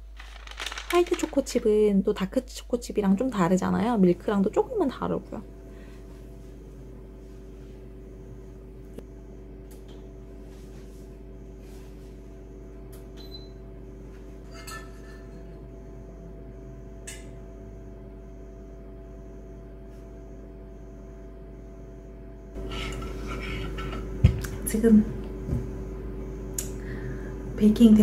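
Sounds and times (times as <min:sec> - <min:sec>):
faint high pulsing tone: 0:11.4 - 0:22.6
household appliance humming: 0:20.2 - 0:28.0.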